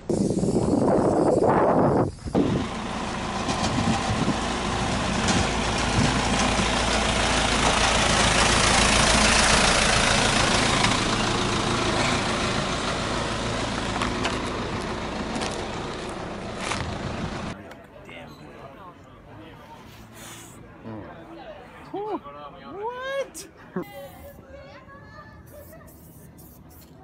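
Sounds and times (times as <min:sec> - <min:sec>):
truck engine passing: 0:02.3 - 0:17.6.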